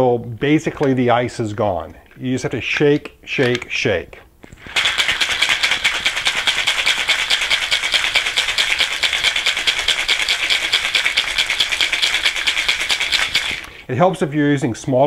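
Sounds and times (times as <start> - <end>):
ice rattling in cocktail shaker: 4.4 - 13.9.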